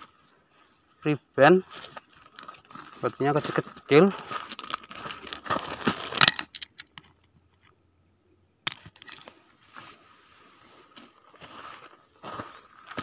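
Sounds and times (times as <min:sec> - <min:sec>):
footsteps on gravel: 0:01.6 - 0:06.8, 0:08.7 - 0:13.0
sharp stone click: 0:06.1 - 0:07.3, 0:08.6 - 0:09.2.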